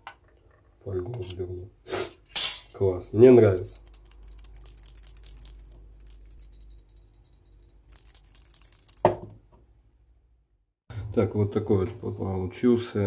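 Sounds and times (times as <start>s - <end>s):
metal balls rattling in lead weight: 3.1s - 9.4s.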